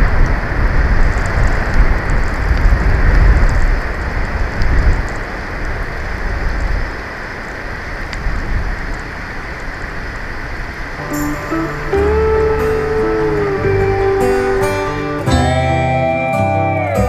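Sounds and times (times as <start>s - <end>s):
wind buffeting microphone: 0.0s - 14.8s
music: 11.0s - 17.0s.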